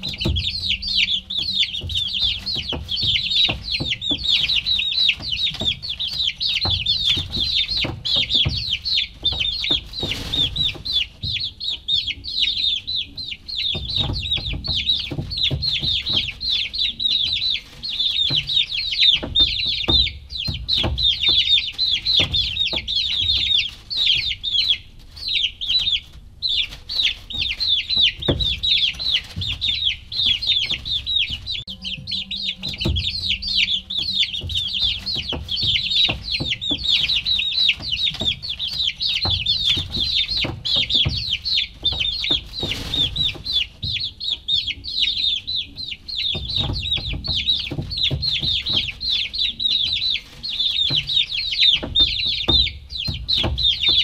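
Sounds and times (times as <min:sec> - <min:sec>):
chicks peeping: 0:00.0 - 0:54.0
low knocks and rumble: 0:27.4 - 0:44.3.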